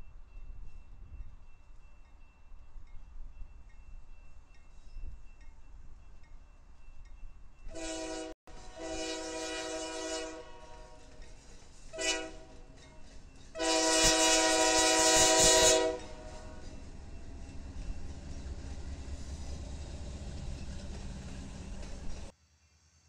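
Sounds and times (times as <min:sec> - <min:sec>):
train rumbling: 0:00.0 - 0:22.4
locomotive air horn blasts: 0:07.7 - 0:11.2, 0:11.9 - 0:12.7, 0:13.6 - 0:16.8.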